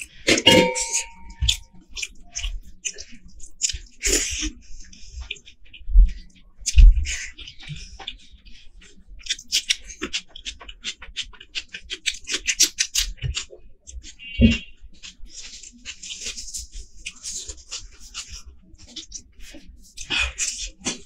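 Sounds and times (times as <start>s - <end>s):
fingers mixing rice on plate: 0.0s - 21.0s
wet chewing and lip-smacking: 1.4s - 21.0s.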